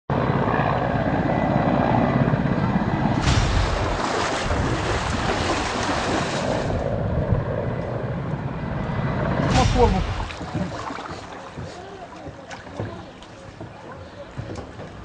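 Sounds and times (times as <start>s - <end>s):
helicopter rotor beating: 0.1s - 12.8s
faint voices: 9.4s - 15.0s.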